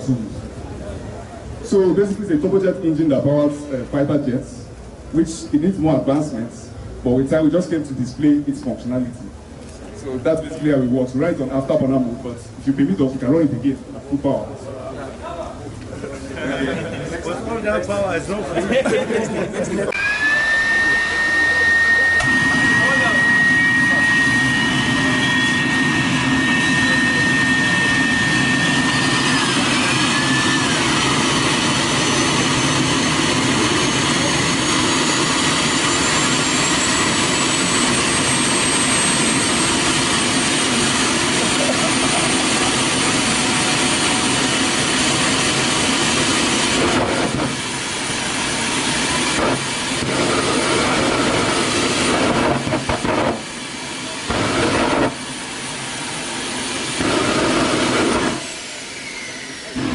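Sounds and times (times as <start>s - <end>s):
turbine whine: 0.0s - 59.9s
jet engine roar: 19.3s - 59.9s.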